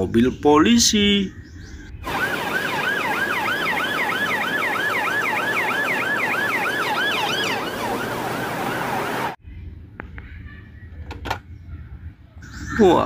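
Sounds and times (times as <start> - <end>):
police sirens yelping: 2.0 - 9.4.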